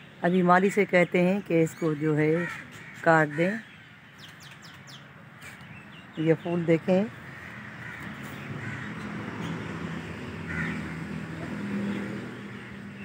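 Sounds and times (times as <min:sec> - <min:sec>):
crows cawing: 0:01.8 - 0:03.8, 0:07.1 - 0:13.0.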